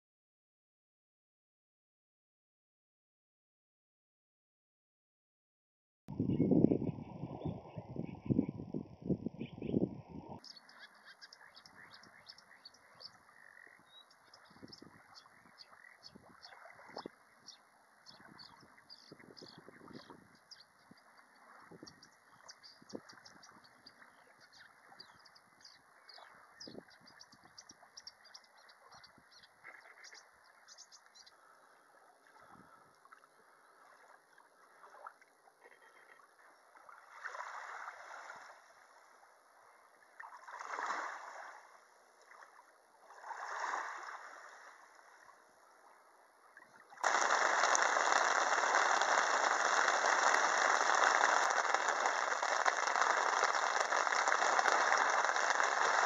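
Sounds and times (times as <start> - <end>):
light high ticking: 47.0 - 56.0
rush of wind and rain: 47.0 - 56.0
water lapping: 47.0 - 56.0.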